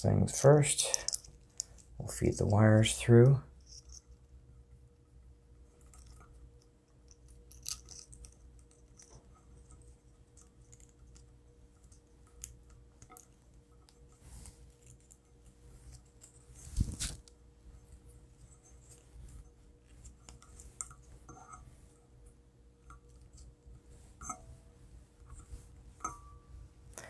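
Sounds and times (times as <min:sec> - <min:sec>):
faint steady hum: 0:00.0 - 0:27.0
small clicks and rustles: 0:00.9 - 0:02.0, 0:05.7 - 0:22.0.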